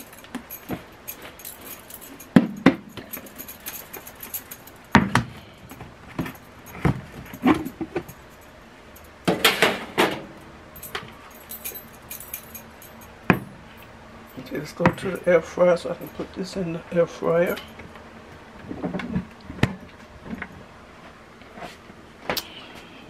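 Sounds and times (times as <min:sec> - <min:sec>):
metal bracelets jingling: 0:00.0 - 0:09.1, 0:10.8 - 0:15.3.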